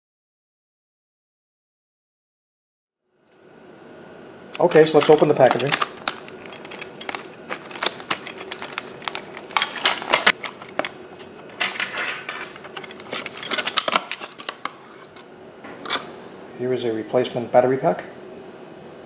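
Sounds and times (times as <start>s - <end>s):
plastic packaging crackling: 4.6s - 11.6s.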